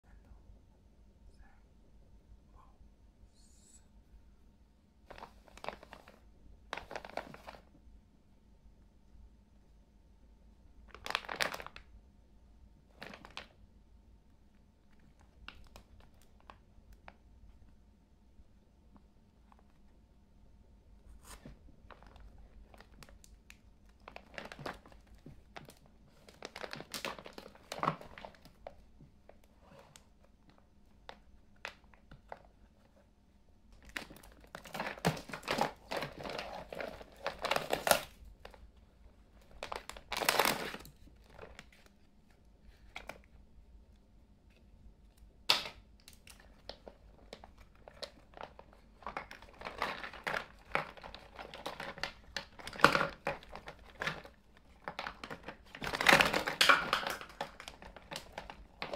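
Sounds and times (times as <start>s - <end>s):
plastic bag crinkling: 5.1s - 7.7s, 10.9s - 11.9s, 12.9s - 13.5s, 21.3s - 29.4s, 33.8s - 38.7s, 39.3s - 42.0s, 45.5s - 58.9s.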